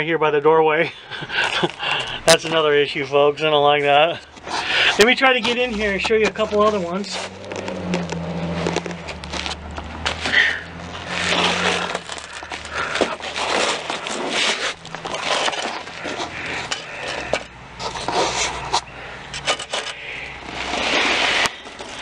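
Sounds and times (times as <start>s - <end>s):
scraping and scuffing on soil: 1.4s - 22.0s.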